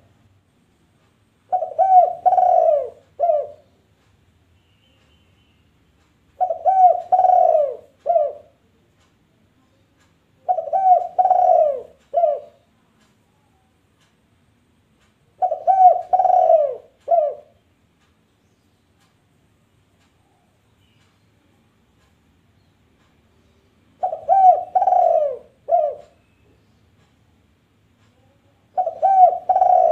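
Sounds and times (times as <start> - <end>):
dove cooing: 1.5 - 3.7, 6.4 - 8.6, 10.4 - 12.6, 15.4 - 17.6, 24.0 - 26.2, 28.7 - 29.9.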